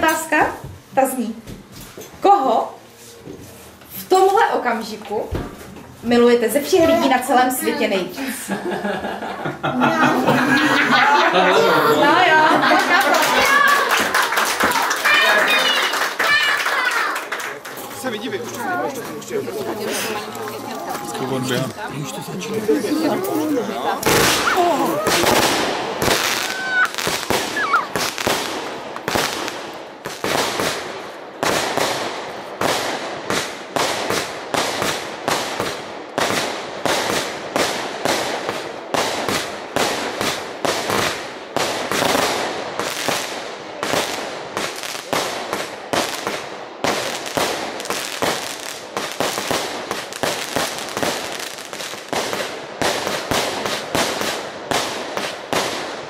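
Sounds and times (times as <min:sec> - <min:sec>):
fireworks bangs and crackles: 0:17.6 - 0:56.0.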